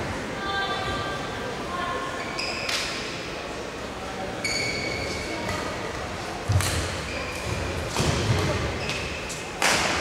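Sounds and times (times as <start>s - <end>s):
shoes squeaking on court floor: 4.4s - 5.6s, 6.5s - 9.6s.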